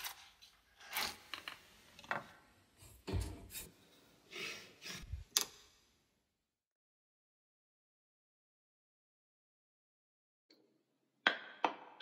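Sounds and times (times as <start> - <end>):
objects scraping and rubbing: 2.8 - 5.3.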